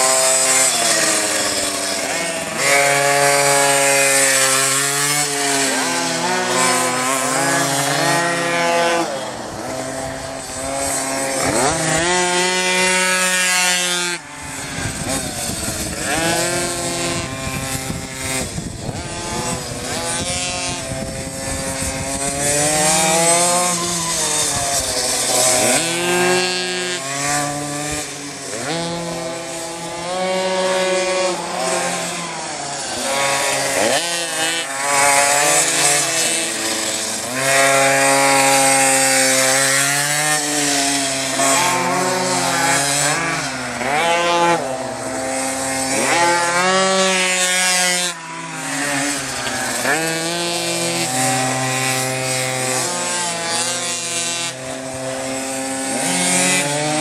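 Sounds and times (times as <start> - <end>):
small two-stroke engine revving: 0.0 - 57.0.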